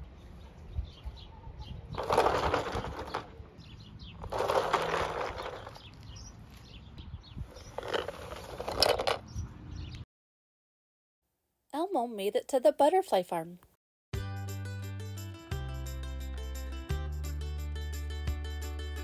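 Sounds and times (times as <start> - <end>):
plastic toy wheels rolling and rattling: 2.0 - 3.4, 4.2 - 6.1, 7.5 - 9.2.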